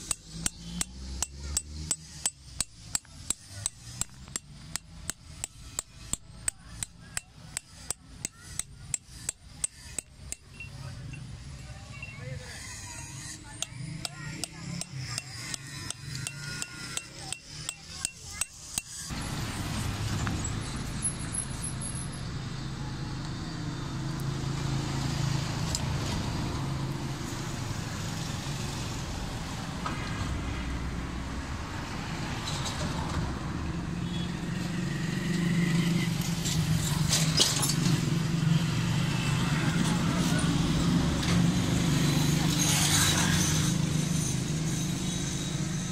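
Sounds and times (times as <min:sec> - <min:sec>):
metal chisel tapping on stone: 0:00.0 - 0:11.3, 0:13.2 - 0:19.1
passing traffic: 0:00.0 - 0:45.9.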